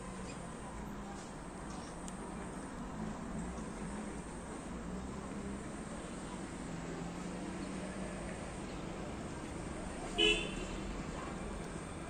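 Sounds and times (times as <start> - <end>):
outdoor background noise: 0.0 - 12.0
vehicle horn toot: 10.2 - 10.7.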